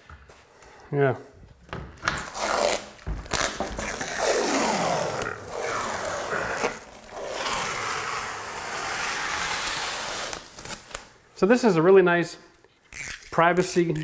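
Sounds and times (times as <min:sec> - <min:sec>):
plastic film being peeled: 0:02.2 - 0:11.2.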